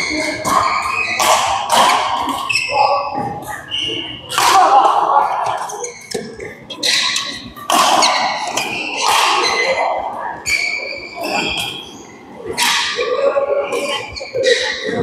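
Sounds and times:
shoes squeaking on court: 0.0s - 4.4s, 5.4s - 9.8s, 10.4s - 13.0s, 13.6s - 15.0s
racket striking shuttlecock: 0.3s - 2.6s, 4.3s - 4.8s, 6.8s - 9.8s.

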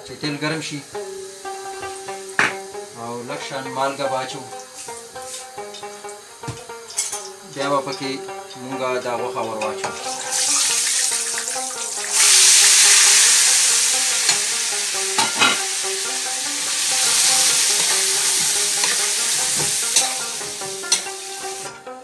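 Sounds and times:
meat sizzling in hot oil: 0.6s - 3.0s, 3.9s - 7.9s, 9.8s - 21.7s
metal spoon clicking on pan: 17.7s - 20.2s, 20.9s - 21.2s.

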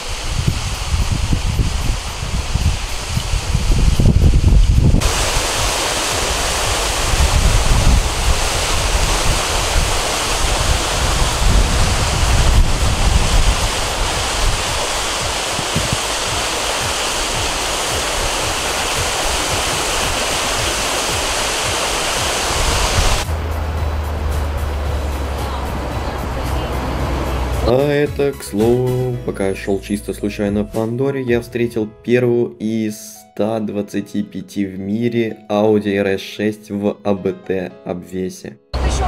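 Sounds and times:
wind buffeting microphone: 0.0s - 27.5s
waterfall and stream rushing: 0.0s - 29.0s.

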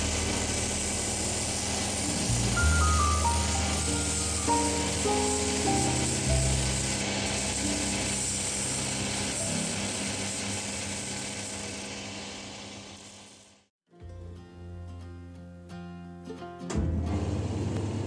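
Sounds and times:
soft music: 1.1s - 7.0s, 13.9s - 17.8s
sanding belt grinding rubber: 3.8s - 12.1s.

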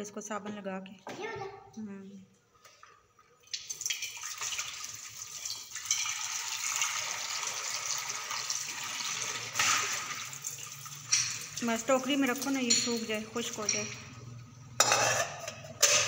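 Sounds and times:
tap water running into sink: 3.5s - 12.8s
water splashing on steel bowl: 3.5s - 14.0s.

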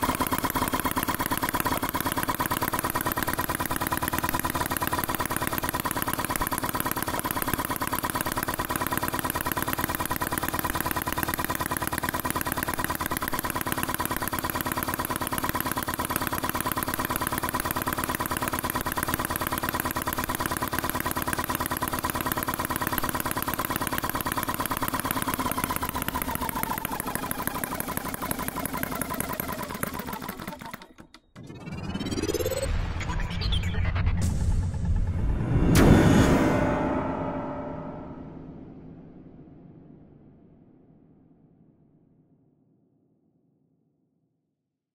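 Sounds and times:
model engine running: 0.0s - 32.7s.

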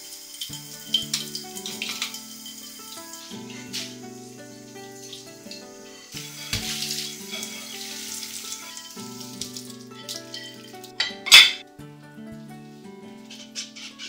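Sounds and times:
soft background music: 0.0s - 14.0s
tap water splashing into sink: 0.4s - 2.3s, 6.3s - 10.4s.

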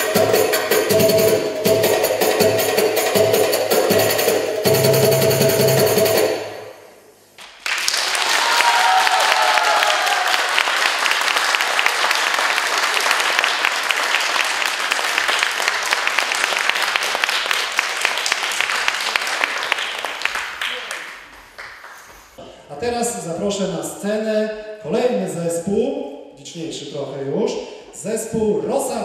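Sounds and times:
percussive dance music: 0.0s - 6.7s
audience applauding: 7.4s - 22.2s.

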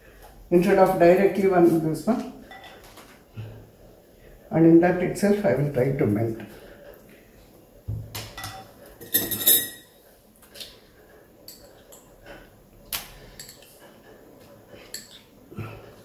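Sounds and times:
dishes clattering: 2.4s - 3.0s, 8.2s - 10.0s
glass bowls and utensil clinking: 8.4s - 10.0s.

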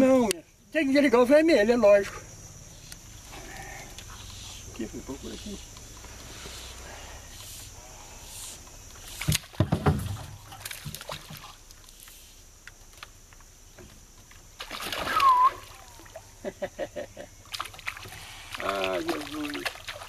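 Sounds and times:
water splashing: 9.0s - 11.9s, 14.5s - 16.4s, 17.4s - 20.0s.

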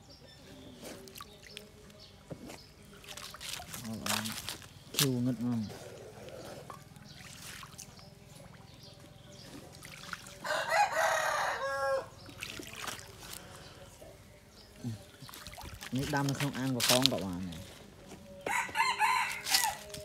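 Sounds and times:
faint water sounds from net: 0.6s - 18.0s
rooster crowing: 10.4s - 12.1s, 18.5s - 19.9s.

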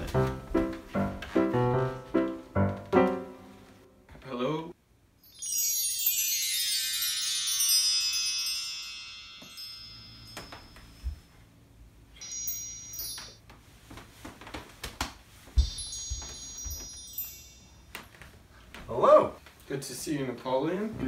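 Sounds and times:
chimes ringing: 5.2s - 13.4s, 15.6s - 18.1s.

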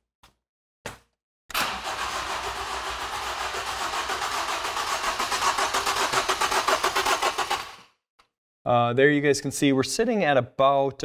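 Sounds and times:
engine cranking on starter: 1.5s - 7.9s.

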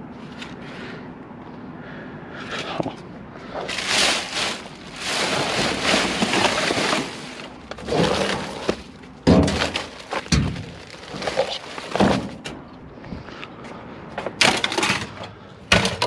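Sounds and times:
plastic bags and paper rustling: 3.6s - 12.5s.

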